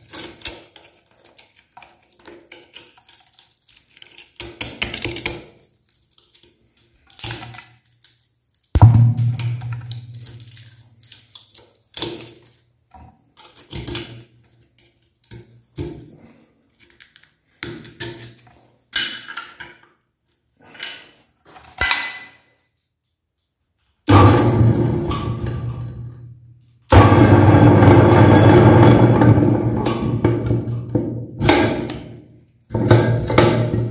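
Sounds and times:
low metallic hum: 0:08.8 - 0:10.8.

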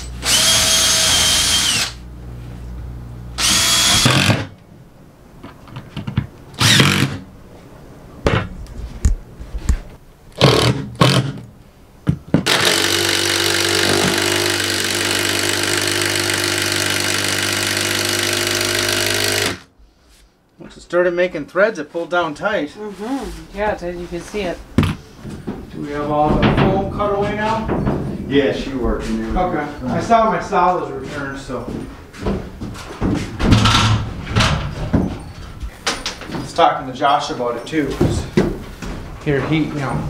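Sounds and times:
cordless drill drilling into plywood: 0:00.2 - 0:02.0, 0:03.4 - 0:04.5, 0:06.6 - 0:07.2, 0:12.5 - 0:19.7
impact driver driving screws: 0:03.4 - 0:04.5, 0:06.6 - 0:07.2, 0:10.4 - 0:11.4, 0:12.4 - 0:19.7.

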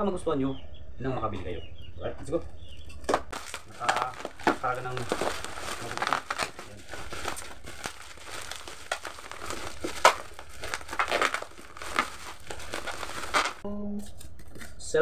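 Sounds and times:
plastic packaging rustling: 0:03.0 - 0:13.6.

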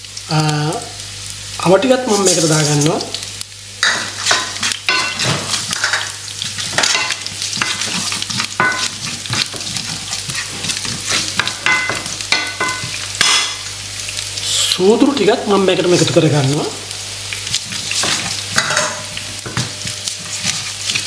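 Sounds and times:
spices sizzling in hot oil: 0:00.0 - 0:21.0
spoon scraping and knocking pan: 0:03.8 - 0:13.7, 0:17.4 - 0:21.0.

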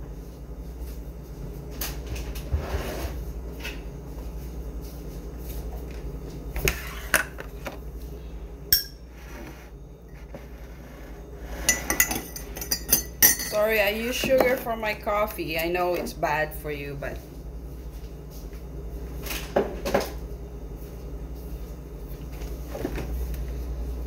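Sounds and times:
steady low hum: 0:00.0 - 0:24.0
ringing clink: 0:08.7 - 0:09.0
dishes knocking and clinking: 0:11.6 - 0:13.6.

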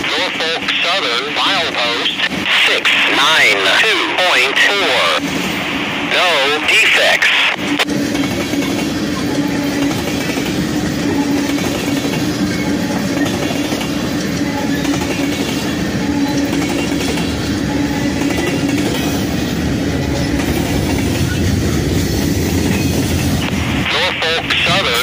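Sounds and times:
train wheels rumbling on rails: 0:07.6 - 0:25.0.

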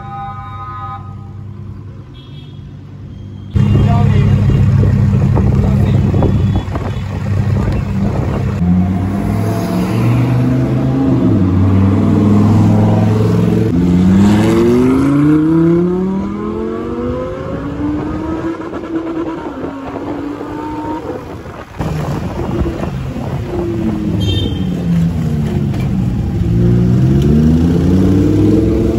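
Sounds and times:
sports car engine revving: 0:07.1 - 0:24.1, 0:26.6 - 0:28.9.

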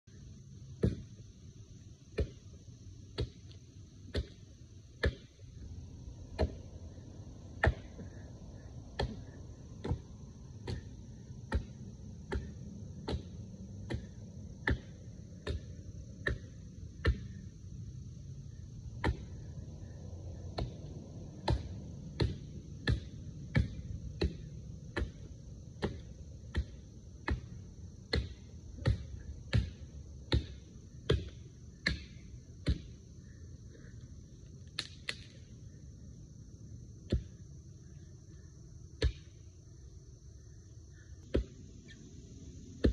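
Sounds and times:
axe chopping tree trunk: 0:07.6 - 0:08.0, 0:11.4 - 0:17.3, 0:19.0 - 0:19.4, 0:21.4 - 0:32.9, 0:39.0 - 0:39.3.

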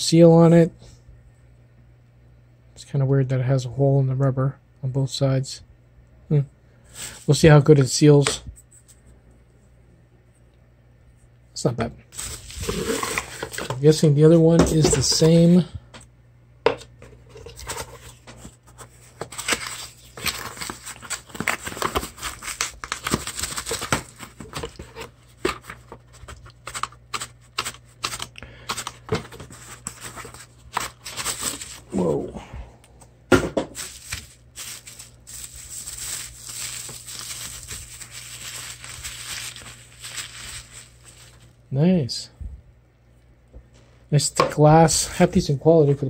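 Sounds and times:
bubble wrap crinkling and tearing: 0:12.1 - 0:13.8, 0:17.6 - 0:31.9, 0:33.7 - 0:41.6.

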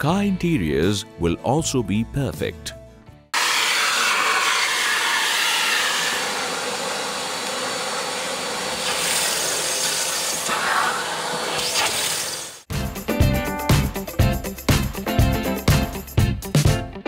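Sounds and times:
vacuum cleaner suction: 0:03.4 - 0:12.7.

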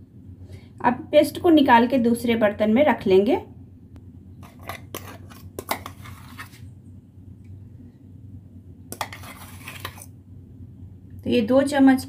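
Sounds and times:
metal spoon scraping jar: 0:04.4 - 0:06.6, 0:08.9 - 0:10.1.

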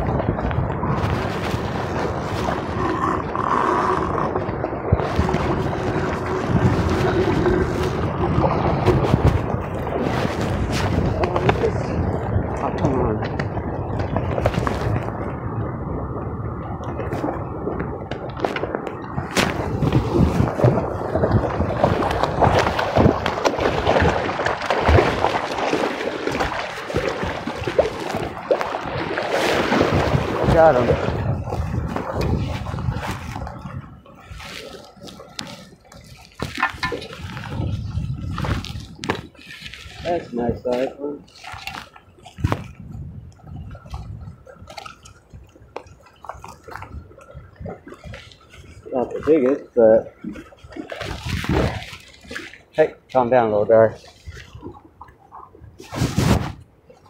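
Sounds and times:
water splashing from thrashing fish: 0:00.0 - 0:15.4, 0:16.8 - 0:52.8
fishing tackle clicks and knocks: 0:35.0 - 0:39.8.

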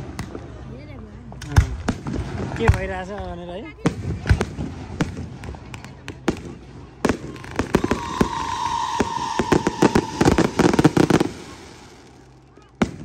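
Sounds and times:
fireworks bangs and crackles: 0:01.4 - 0:13.0
falling firework whistle: 0:07.3 - 0:12.3.

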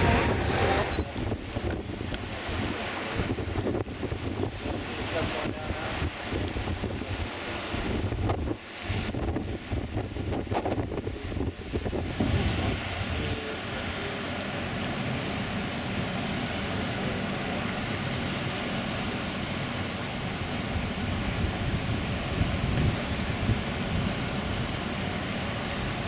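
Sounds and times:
wind rushing: 0:00.0 - 0:07.2
sea: 0:00.0 - 0:26.0
wind buffeting microphone: 0:00.0 - 0:26.0.

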